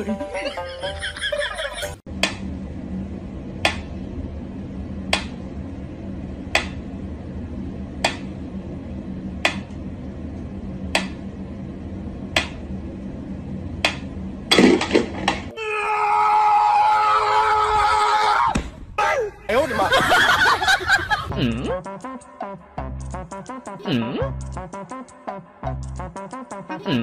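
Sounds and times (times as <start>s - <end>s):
steady low hum: 0.0s - 15.6s, 17.3s - 27.0s.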